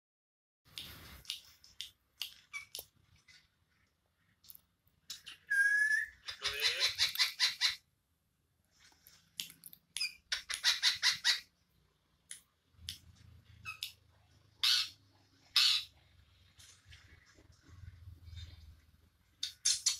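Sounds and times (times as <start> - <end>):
parrot clicks and chirps: 0.7 - 2.9, 4.5 - 7.8, 9.4 - 11.5, 12.3 - 14.0, 19.4 - 19.9
parrot harsh chattering: 5.2 - 7.8, 10.0 - 11.5, 14.6 - 15.9
parrot whistle: 5.4 - 6.2.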